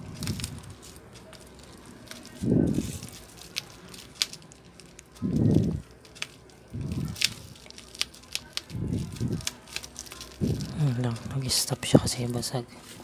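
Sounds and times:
low muffled rumbles: 0:02.3 - 0:03.4.

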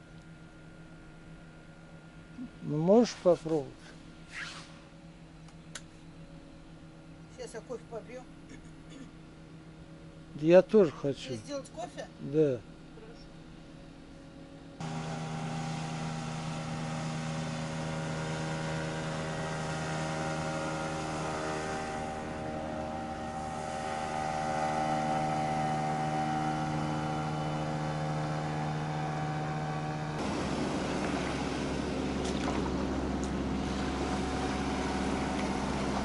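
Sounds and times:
boat motor running: 0:14.4 - 0:36.0.

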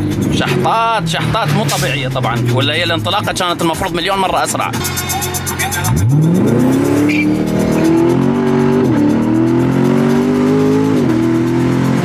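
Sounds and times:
car engine accelerating hard: 0:04.6 - 0:12.0.

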